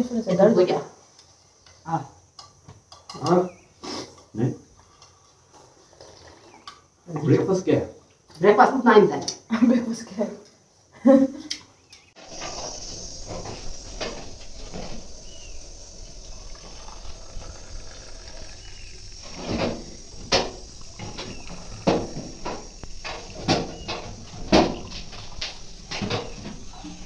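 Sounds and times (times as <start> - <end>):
milk tea pouring into mugs: 15.2 - 22.9.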